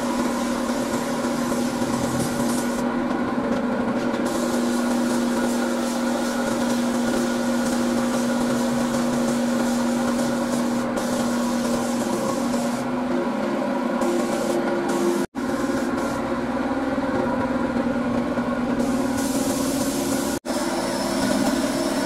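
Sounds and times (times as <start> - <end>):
spray gun hissing: 0.0 - 2.8, 4.2 - 12.8, 14.0 - 16.2, 18.8 - 22.0
air compressor hum: 0.0 - 22.0.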